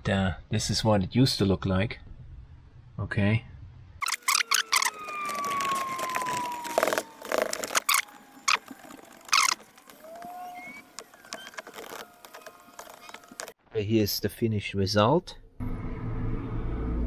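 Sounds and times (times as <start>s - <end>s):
tape peeling off fabric: 4.0s - 13.6s.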